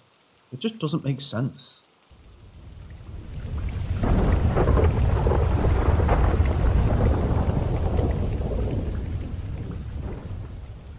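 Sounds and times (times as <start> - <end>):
rain: 0.0 - 10.9
rolling thunder: 2.5 - 10.9.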